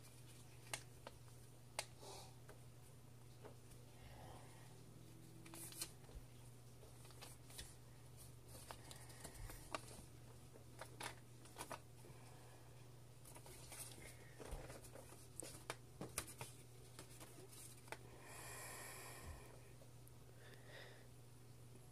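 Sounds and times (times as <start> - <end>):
faint low hum: 0.0 - 21.9
paper crinkling and creasing: 5.4 - 11.9, 13.2 - 18.0.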